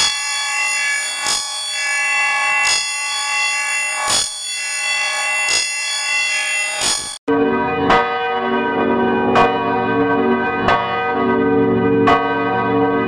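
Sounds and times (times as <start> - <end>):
church bell ringing: 1.8 - 13.0.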